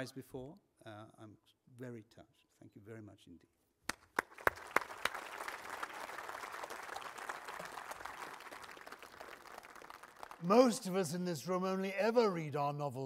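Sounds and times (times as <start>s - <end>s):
audience applauding: 3.9s - 11.3s.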